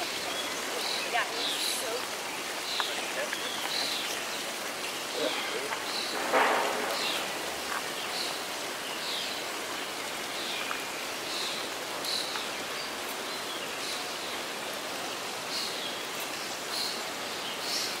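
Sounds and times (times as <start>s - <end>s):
small waterfall rushing: 0.0s - 18.0s.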